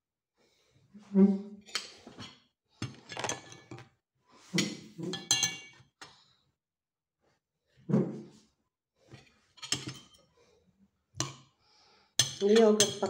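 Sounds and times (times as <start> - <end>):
cutlery clinking on a plate: 4.6 - 5.8.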